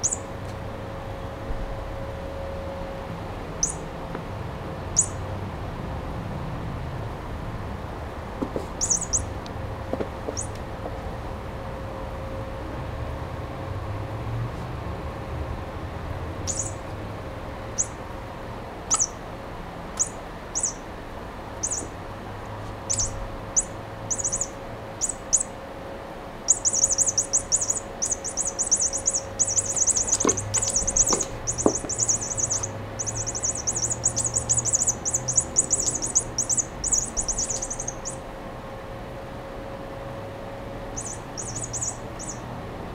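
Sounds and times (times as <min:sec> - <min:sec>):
toy chirping: 0:00.0 - 0:00.2, 0:03.6 - 0:03.8, 0:05.0 - 0:05.2, 0:08.8 - 0:09.3, 0:10.3 - 0:10.6, 0:16.5 - 0:16.8, 0:17.7 - 0:18.0, 0:18.9 - 0:19.2, 0:20.0 - 0:20.9, 0:21.6 - 0:21.9, 0:22.9 - 0:25.5, 0:26.5 - 0:38.2, 0:41.0 - 0:42.5.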